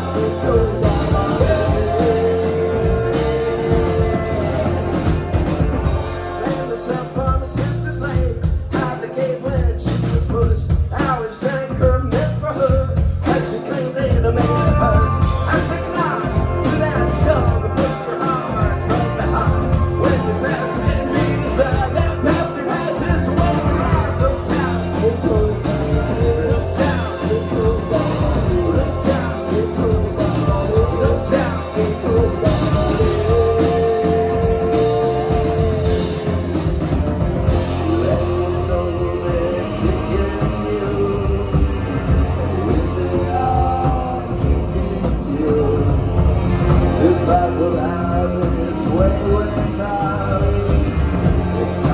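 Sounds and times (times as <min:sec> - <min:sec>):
drum kit hits: 0:00.0 - 0:09.1
drums steady beat: 0:00.0 - 0:51.9
live band playing: 0:00.0 - 0:51.9
man singing: 0:00.0 - 0:51.9.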